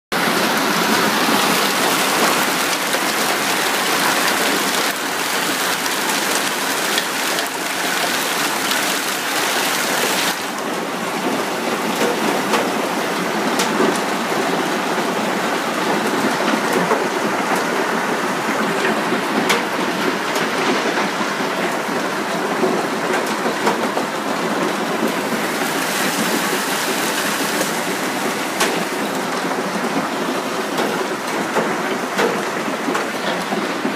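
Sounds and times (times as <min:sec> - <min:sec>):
hail pelting roof tiles: 0:00.2 - 0:33.9.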